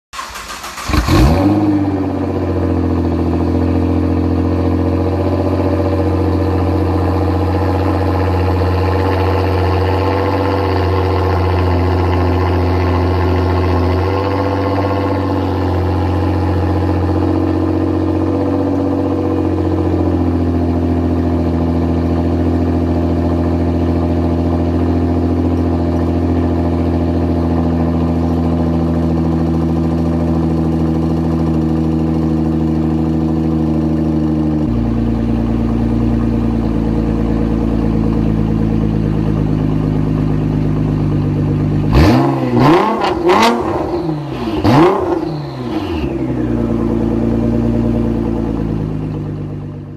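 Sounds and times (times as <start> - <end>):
engine revving: 0.2 - 19.2, 41.8 - 49.1
car engine idling: 0.2 - 49.9.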